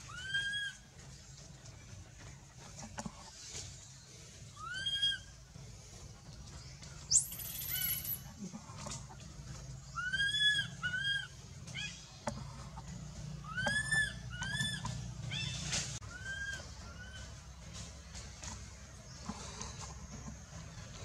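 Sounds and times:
baby macaque crying: 10.0 - 12.0.

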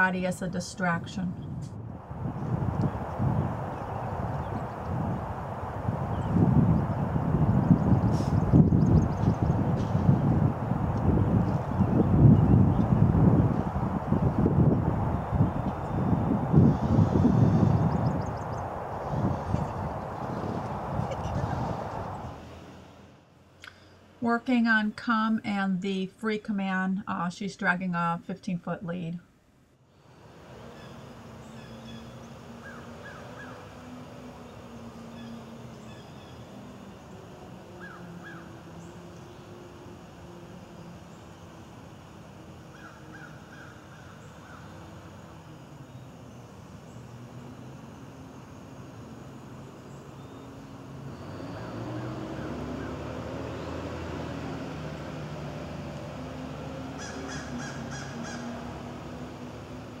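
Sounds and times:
low distant drone: 0.0 - 60.0
outdoor background noise: 0.0 - 60.0
bird calls: 30.7 - 37.2, 37.8 - 39.5, 42.7 - 44.9, 57.0 - 58.7.

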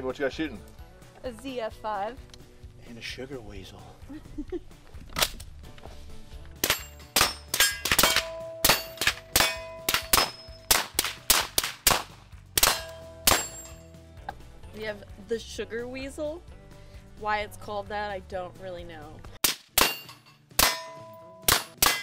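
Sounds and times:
steel target clanging: 6.6 - 11.4, 12.6 - 13.8, 19.8 - 22.0
suppressed gunshots: 6.6 - 13.6.

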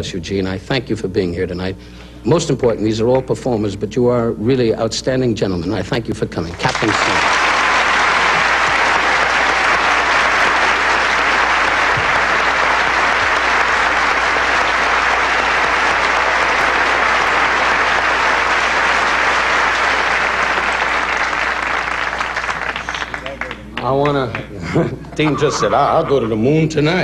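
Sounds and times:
large audience applauding: 6.5 - 24.5.

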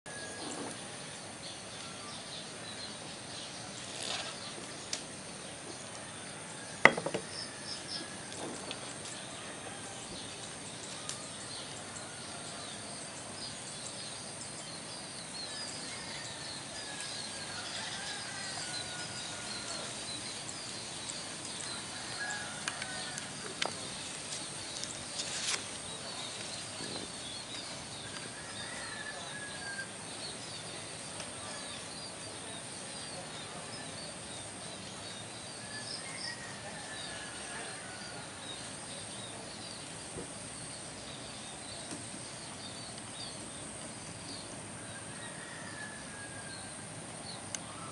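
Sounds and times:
insects chirping: 0.1 - 47.9.

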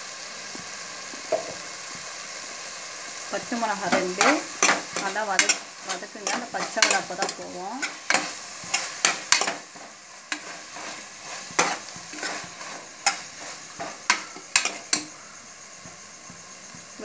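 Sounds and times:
masala sizzling: 0.0 - 17.0
metal spoon scraping a pan: 3.5 - 15.2.

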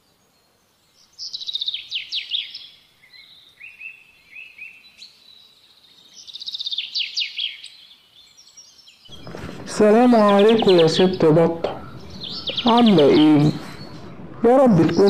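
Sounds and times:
soft bird chirps: 0.0 - 15.0
bird trilling: 9.1 - 15.0.

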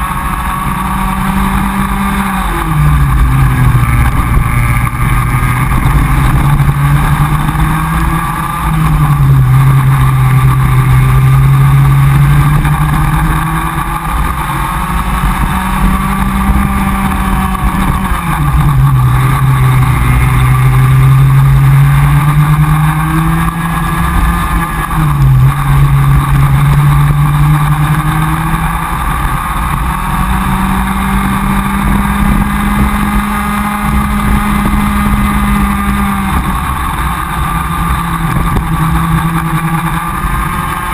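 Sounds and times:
kart engine running flat out: 0.0 - 40.9.

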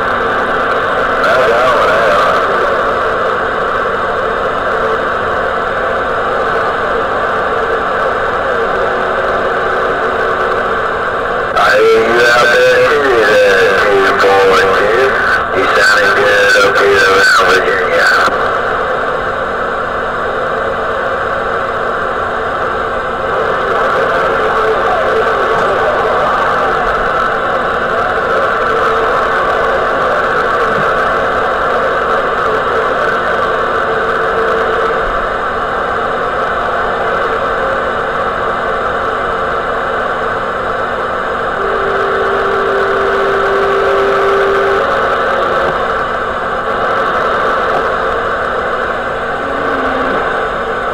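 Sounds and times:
radio static hiss: 0.0 - 50.9
radio transmission: 1.2 - 5.0, 6.4 - 18.9, 22.6 - 35.0, 41.5 - 50.9
steady whistle tone: 41.6 - 44.9.

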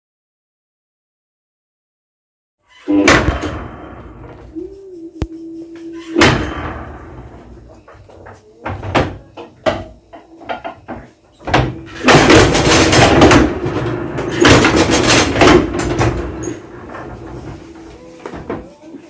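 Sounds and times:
press grinding rumble: 11.7 - 17.8.

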